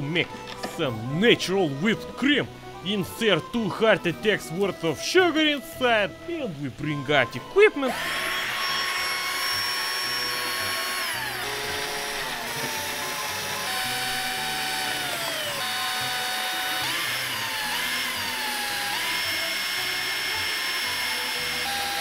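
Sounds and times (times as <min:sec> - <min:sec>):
drill motor whining: 0:07.4 - 0:22.0.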